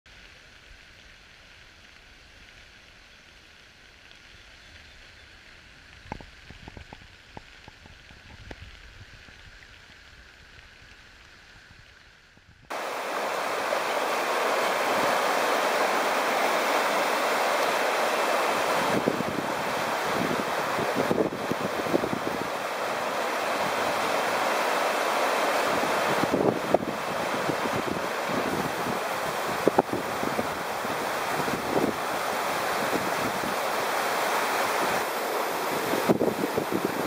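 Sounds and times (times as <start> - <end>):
creek water rushing: 12.7 - 37.0
flooded river rushing: 12.7 - 37.0.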